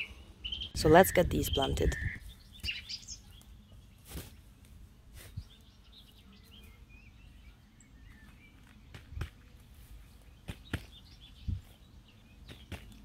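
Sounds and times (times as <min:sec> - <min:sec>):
faint birds chirping: 0:00.0 - 0:13.0.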